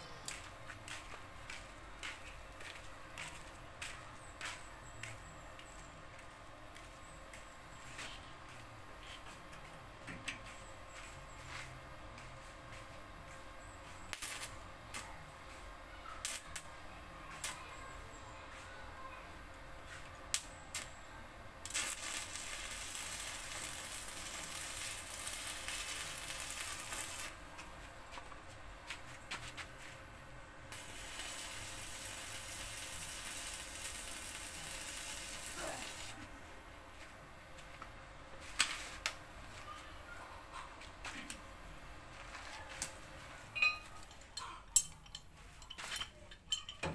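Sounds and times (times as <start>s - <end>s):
arc welding crackling hiss: 14.1s - 15.0s, 21.6s - 27.4s, 30.7s - 36.2s.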